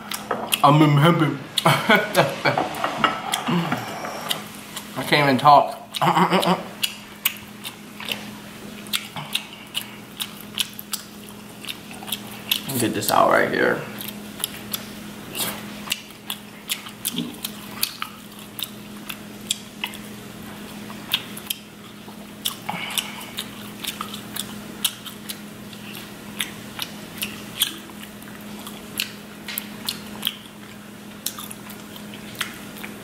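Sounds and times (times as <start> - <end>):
fork scraping out meat: 2.8 - 4.5
wet chewing: 5.7 - 12.8, 13.9 - 33.0.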